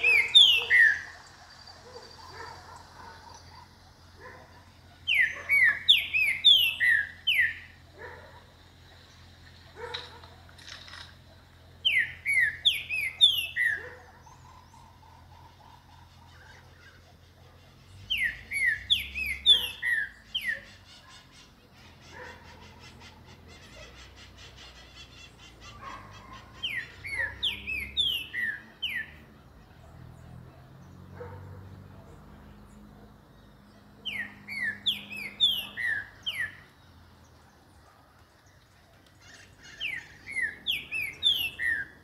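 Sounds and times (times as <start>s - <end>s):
bird whistling song: 0.0s - 3.7s, 5.0s - 7.8s, 11.8s - 15.0s, 16.1s - 21.3s, 23.7s - 29.2s, 34.0s - 36.8s, 39.4s - 42.0s.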